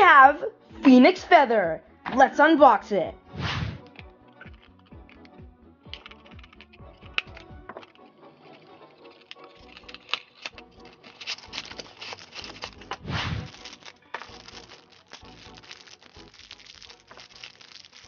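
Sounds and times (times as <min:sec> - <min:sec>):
clicks taps and rustles: 0:03.9 - 0:08.0
plastic bag crinkling: 0:08.7 - 0:18.0.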